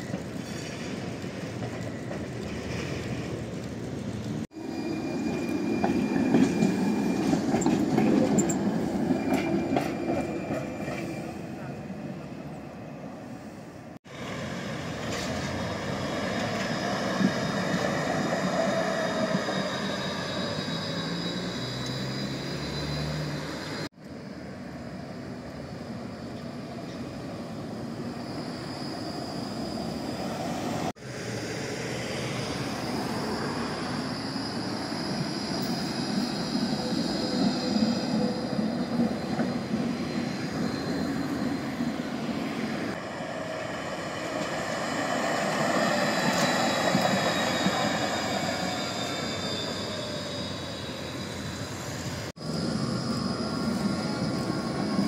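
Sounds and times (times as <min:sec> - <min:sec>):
tram wheels rumbling on rails: 0:00.0 - 0:55.0
high whine of traction motors: 0:18.5 - 0:55.0.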